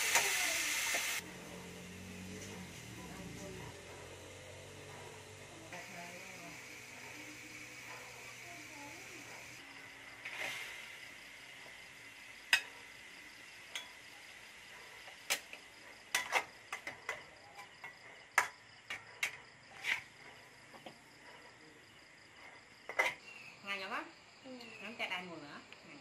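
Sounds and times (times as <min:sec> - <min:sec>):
spatula scraping metal wok: 0:19.7 - 0:20.3.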